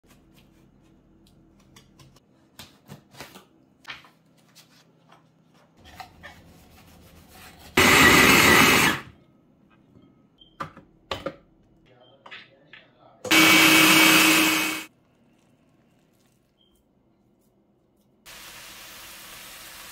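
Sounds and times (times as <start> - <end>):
food processor running: 7.8 - 9.1, 13.3 - 14.9.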